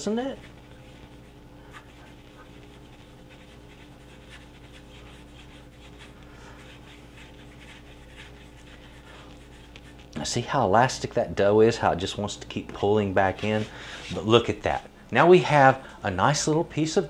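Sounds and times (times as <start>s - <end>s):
dough rolling swishes: 0.0s - 10.4s
steady low hum: 0.0s - 17.0s.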